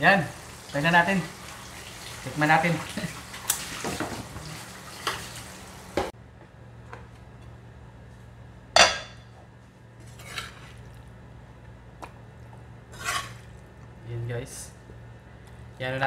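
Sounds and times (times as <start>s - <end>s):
faint sizzle from hot pan: 0.0s - 6.1s
metal spoon scraping in frying pan: 12.9s - 13.4s.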